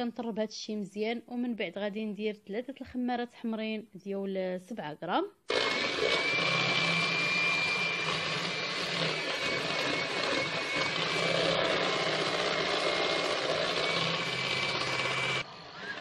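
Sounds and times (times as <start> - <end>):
electric hand mixer whining: 5.5 - 16.0.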